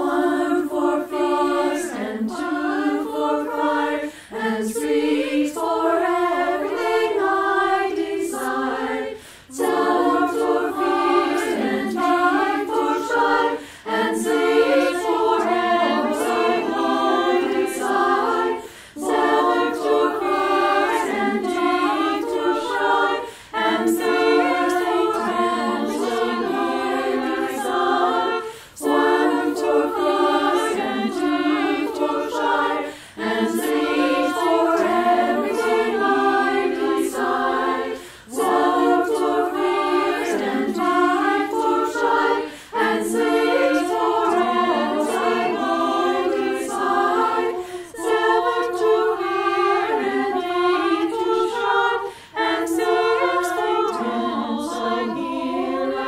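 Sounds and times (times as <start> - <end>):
women's chorus singing a cappella: 0.0 - 56.0
singers breathing: 4.0 - 4.4, 9.1 - 9.6, 13.5 - 14.0, 18.6 - 19.0, 23.2 - 23.6, 28.4 - 28.8, 32.8 - 33.2, 38.0 - 38.3, 42.4 - 42.8, 47.5 - 48.0, 52.0 - 52.4.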